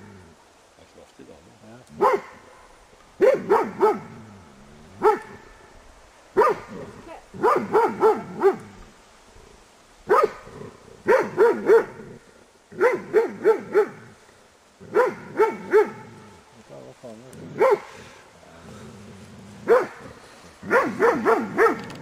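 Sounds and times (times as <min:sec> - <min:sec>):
dog barking sharply: 0:02.0 - 0:02.4, 0:03.2 - 0:04.1, 0:05.0 - 0:05.4, 0:06.4 - 0:06.7, 0:07.4 - 0:08.6, 0:10.1 - 0:10.4, 0:11.1 - 0:12.0, 0:12.8 - 0:14.0, 0:14.9 - 0:16.0, 0:17.6 - 0:17.9, 0:19.7 - 0:20.0, 0:20.7 - 0:21.9.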